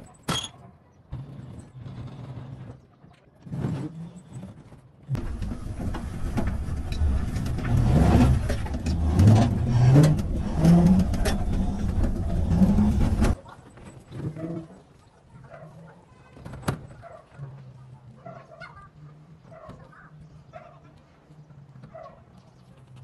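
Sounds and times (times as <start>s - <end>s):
low rumble and rattling: 5.1s - 13.4s.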